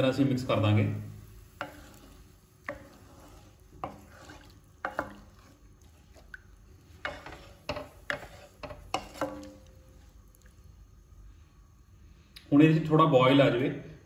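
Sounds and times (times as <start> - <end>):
spatula clacking and scraping pan: 1.4 - 10.0.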